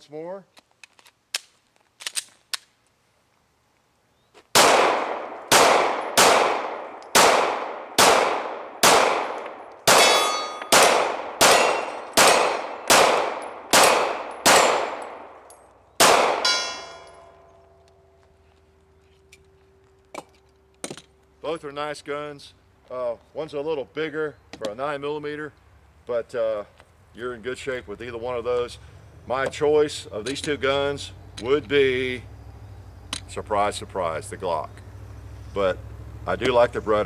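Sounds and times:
pistol handling clicks: 0:00.6 - 0:02.8, 0:05.5 - 0:07.4
pistol shots: 0:04.5 - 0:15.4, 0:16.0 - 0:17.4
steel targets ringing: 0:09.9 - 0:10.8, 0:11.4 - 0:12.6, 0:16.3 - 0:17.8.

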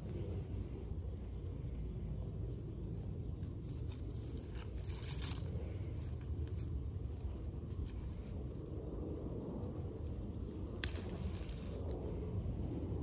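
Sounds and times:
dry roots crackling and tearing: 0:02.5 - 0:13.0.

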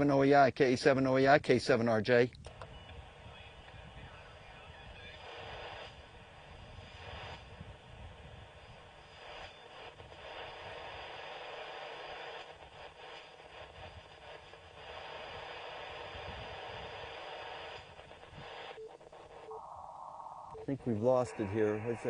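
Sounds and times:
radio static hiss: 0:02.6 - 0:22.0
low rumble: 0:19.5 - 0:20.8.

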